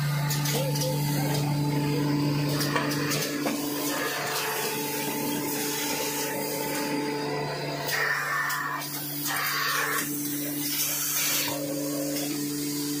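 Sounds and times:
machine motor hum and clatter: 0.0s - 13.0s
machine hiss: 2.5s - 7.1s, 7.7s - 13.0s.

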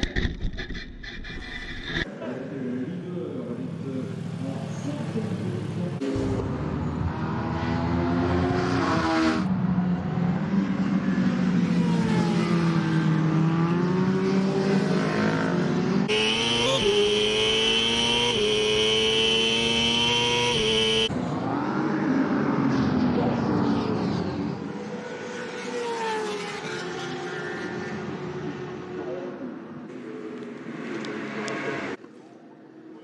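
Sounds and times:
motorbike engines revving: 3.4s - 29.6s.

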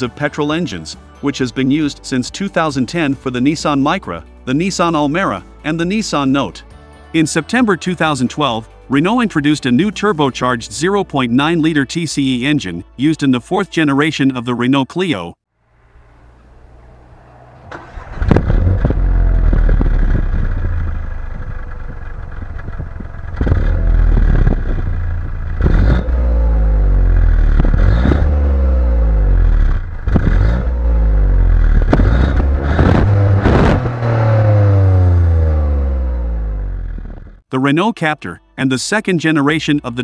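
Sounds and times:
car engine idling and revving: 15.6s - 37.4s
exhaust cracks: 15.6s - 37.4s.

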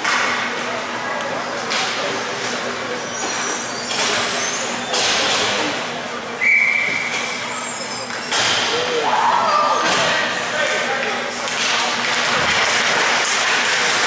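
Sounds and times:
referee's whistle blast: 6.4s - 7.4s.

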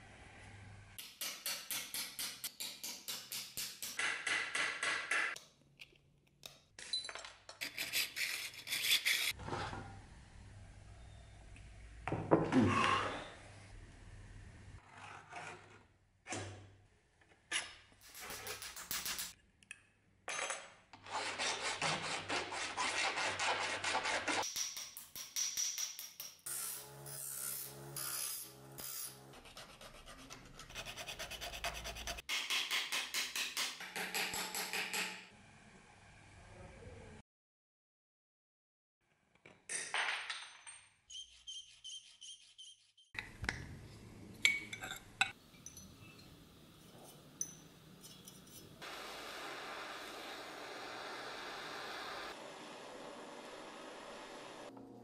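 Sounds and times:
file rasping on brass: 29.3s - 32.3s.

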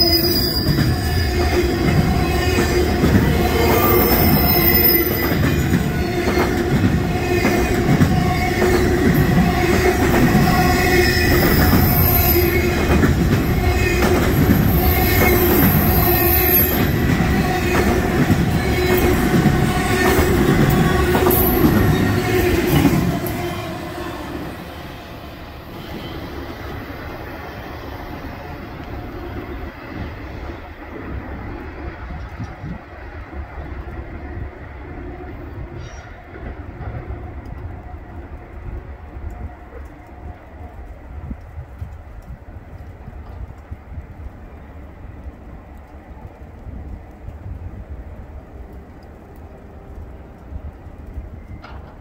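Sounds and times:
train wheels squealing: 0.0s - 1.6s, 3.5s - 6.5s, 10.6s - 12.9s, 14.4s - 17.0s
freight train rolling past: 0.0s - 52.0s.

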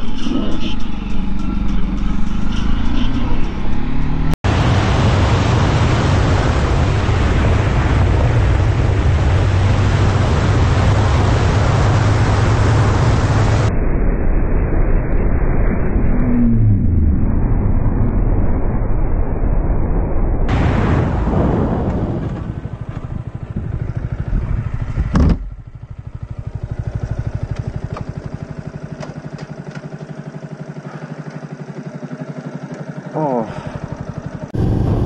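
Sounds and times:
motorcycle engine drone: 0.0s - 35.0s
wind rush over microphone: 4.5s - 25.5s.

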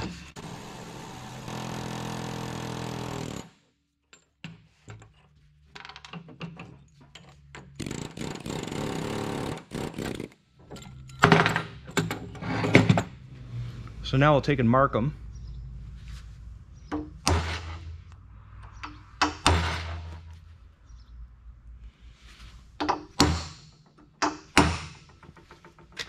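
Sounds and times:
loud knocks: 16.9s - 17.8s.

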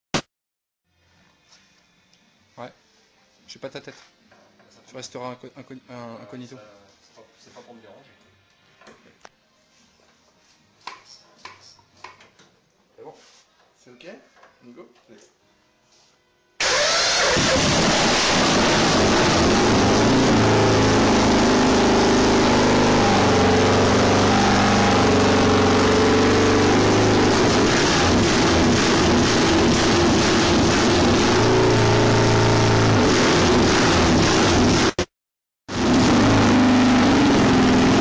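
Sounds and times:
roller starter turning wheel: 16.6s - 33.5s
motorcycle engine running: 17.4s - 34.9s.

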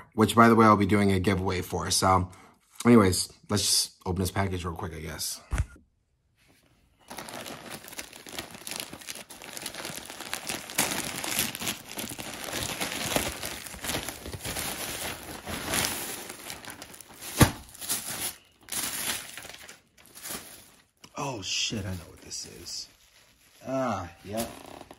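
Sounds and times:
wrapping rustling: 6.6s - 24.9s
plastic bag crinkling: 7.0s - 24.9s.

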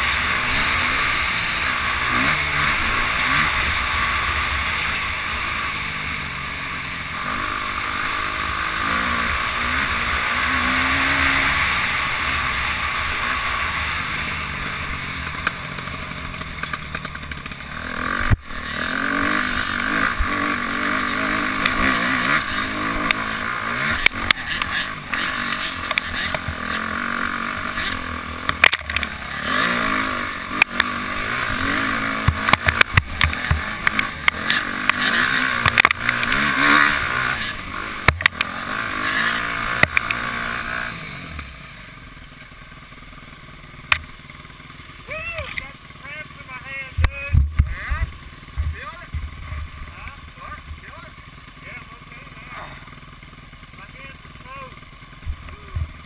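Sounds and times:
dirt bike engine revving: 0.0s - 56.0s
sharp knocks from bumps: 32.2s - 36.5s, 47.0s - 49.4s.

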